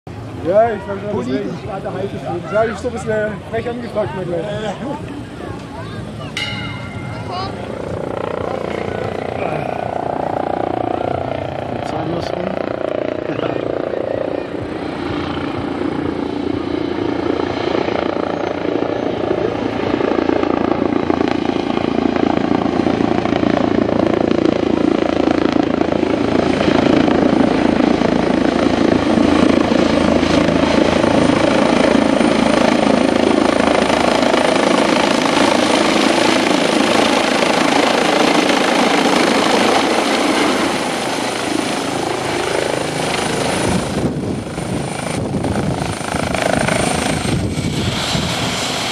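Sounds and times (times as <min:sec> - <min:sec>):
helicopter rotor and turbine noise: 0:00.1 - 0:48.9.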